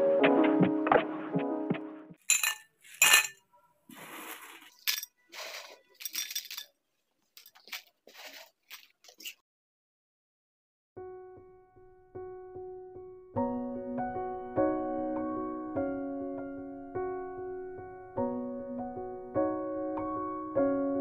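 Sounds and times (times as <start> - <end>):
dishware clinking: 2.2 - 3.4, 4.8 - 5.2, 5.9 - 6.7
scratchy clinks and rattles: 2.2 - 3.4, 5.9 - 6.8.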